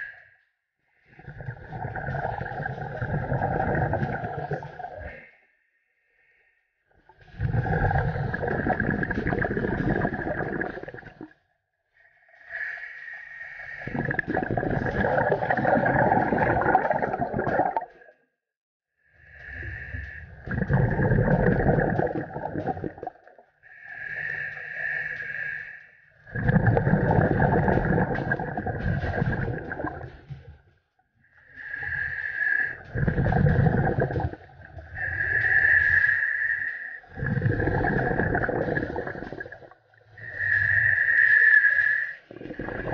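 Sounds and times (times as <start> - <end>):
exhalation bubbling underwater: 1.2 - 5.2, 7.3 - 11.3, 13.6 - 18.1, 20.1 - 23.4, 26.2 - 30.5, 31.6 - 36.2, 37.1 - 42.9
regulator hissing inhalation: 23.7 - 25.8, 31.6 - 32.9, 35.0 - 39.2.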